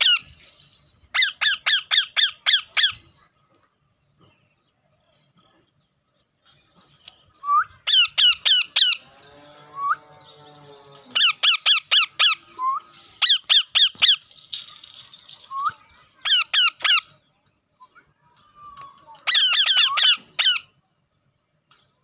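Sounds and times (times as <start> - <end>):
parakeets screeching: 0.0 - 0.3, 1.1 - 3.2, 7.8 - 14.3, 16.0 - 17.2, 19.1 - 20.8
rising whistles: 12.3 - 13.0.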